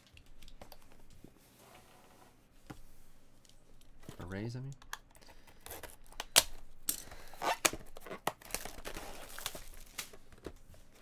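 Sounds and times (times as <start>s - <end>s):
plastic wrap crinkling and snapping: 4.7s - 11.0s.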